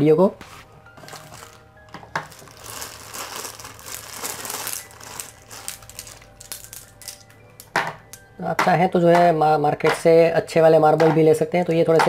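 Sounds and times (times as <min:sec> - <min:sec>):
plastic bag crinkling: 0:01.0 - 0:07.3.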